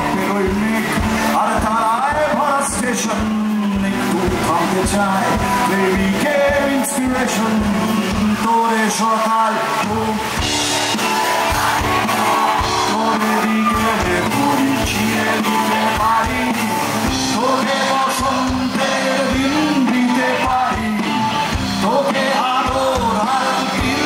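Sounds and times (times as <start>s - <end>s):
steady drum beat: 0.0s - 8.6s, 9.8s - 24.0s
man singing: 0.0s - 10.6s, 12.2s - 24.0s
rock band playing live: 0.0s - 24.0s.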